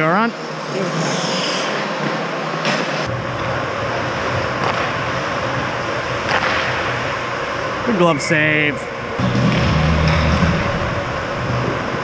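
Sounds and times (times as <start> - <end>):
low rumble: 9.2 - 12.0.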